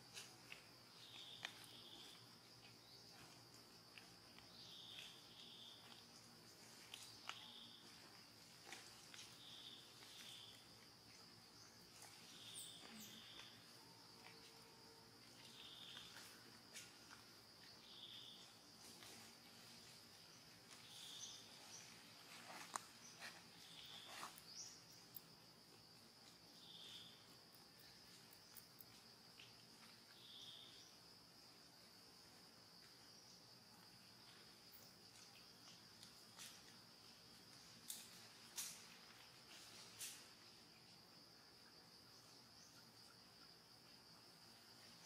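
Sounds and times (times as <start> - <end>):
high insect drone: 0.0 - 45.0.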